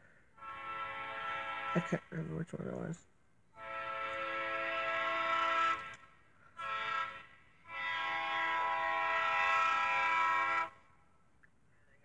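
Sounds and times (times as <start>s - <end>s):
locomotive air horn blasts: 0.3s - 2.4s, 3.6s - 10.9s.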